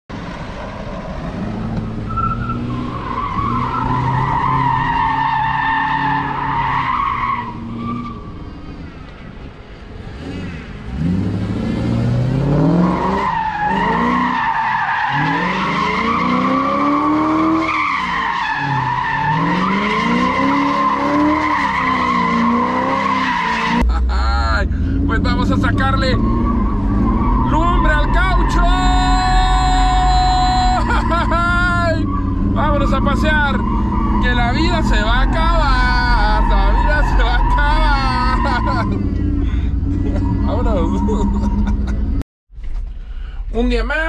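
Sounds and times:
tyres squealing on concrete: 2.1s - 8.4s, 12.8s - 23.8s, 25.7s - 39.1s, 39.9s - 41.8s
engine revving: 10.0s - 14.3s, 15.1s - 42.2s.

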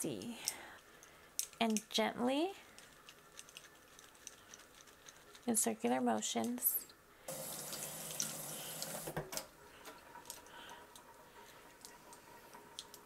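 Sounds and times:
water drips: 7.3s - 9.1s
tap water running into sink: 7.3s - 9.3s.

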